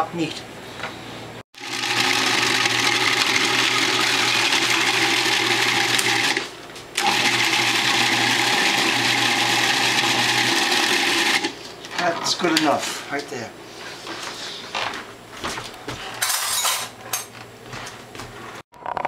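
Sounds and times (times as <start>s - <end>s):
food processor chopping: 1.6s - 11.6s.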